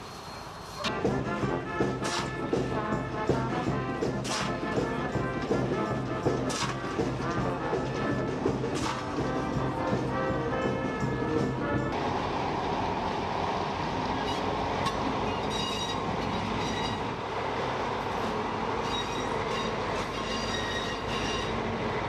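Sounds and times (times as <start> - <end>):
high wheel squeal: 0.0 - 0.9, 14.1 - 17.2, 18.1 - 21.8
train wheels rumbling on rail: 0.0 - 22.0.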